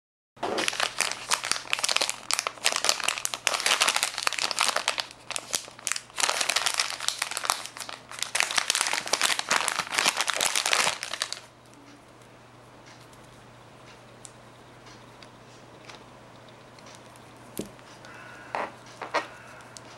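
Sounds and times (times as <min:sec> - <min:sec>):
plastic pouch crinkling: 0:00.4 - 0:11.5.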